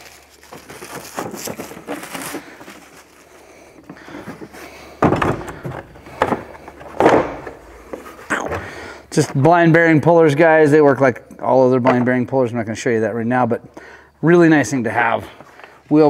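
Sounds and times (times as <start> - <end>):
plastic wrap crinkling and tearing: 0.0 - 3.9.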